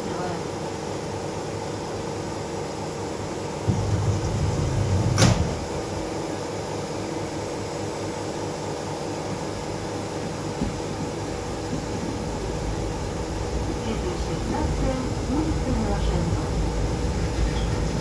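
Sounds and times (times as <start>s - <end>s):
ventilation hum: 0.0s - 18.0s
sliding doors closing: 3.7s - 6.1s, 11.7s - 18.0s.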